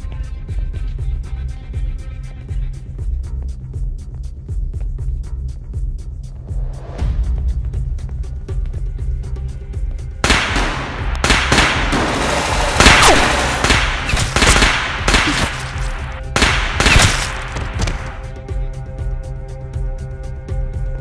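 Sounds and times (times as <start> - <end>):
background music: 0.0 - 21.0
rapid rifle gunfire: 10.2 - 12.2, 12.8 - 18.2.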